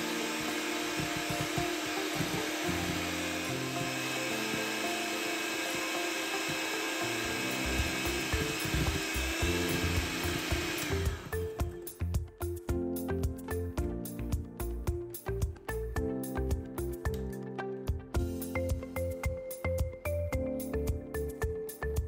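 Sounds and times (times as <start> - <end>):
electric kitchen mixer running: 0.0 - 11.6
background music: 0.0 - 22.0.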